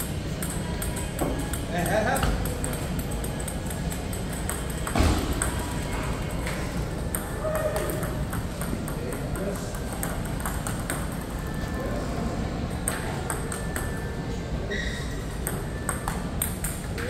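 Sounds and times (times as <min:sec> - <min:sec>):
table tennis balls clicking: 0:00.0 - 0:12.0, 0:12.7 - 0:14.2, 0:15.2 - 0:17.0.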